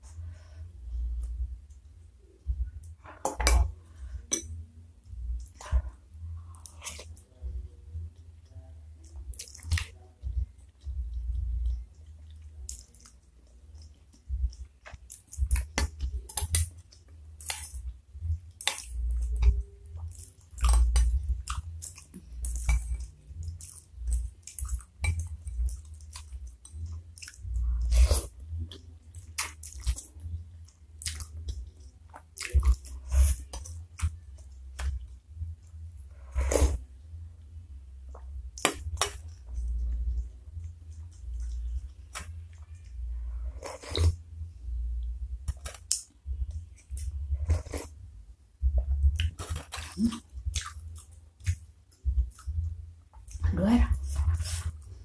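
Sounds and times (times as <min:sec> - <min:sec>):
slurping and chewing noodles: 0:40.9 - 0:44.2.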